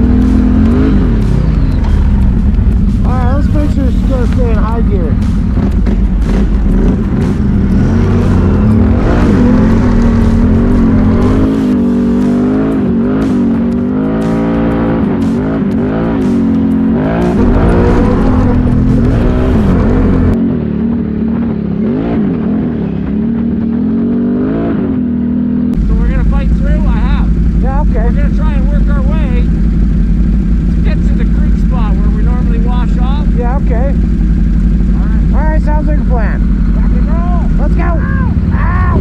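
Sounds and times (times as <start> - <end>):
atv engine revving: 0.0 - 39.0.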